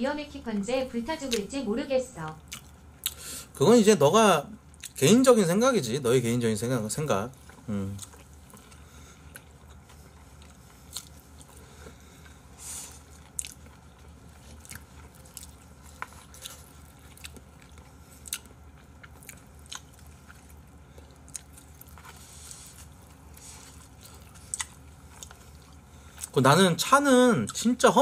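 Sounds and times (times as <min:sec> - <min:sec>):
low steady hum: 0:00.0 - 0:28.0
chewing and biting food: 0:02.4 - 0:03.2, 0:04.6 - 0:05.0, 0:07.3 - 0:26.7.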